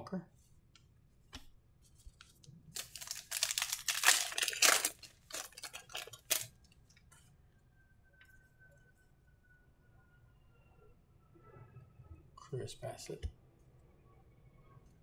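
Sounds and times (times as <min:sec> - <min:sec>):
wrapper tearing and crinkling: 0:02.7 - 0:06.7.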